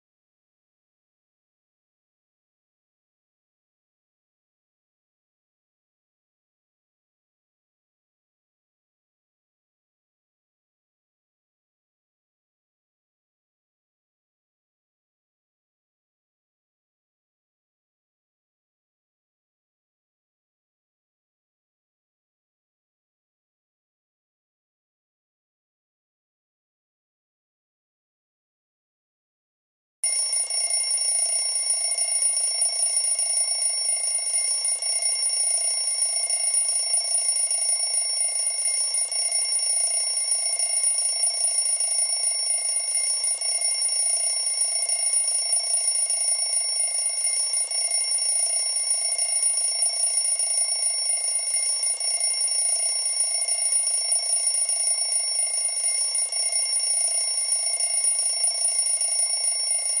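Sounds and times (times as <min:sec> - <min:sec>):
timer alarm ringing: 0:30.0 - 1:00.0.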